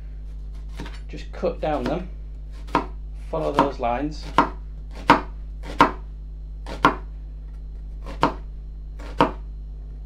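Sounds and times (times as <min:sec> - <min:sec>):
knife striking chopping board: 0:02.6 - 0:06.0, 0:06.7 - 0:07.1, 0:09.0 - 0:09.4.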